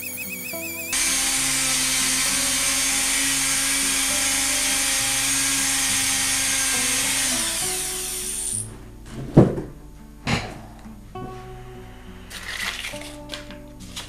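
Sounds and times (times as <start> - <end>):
rotary tool sanding wood: 0.8 - 8.7.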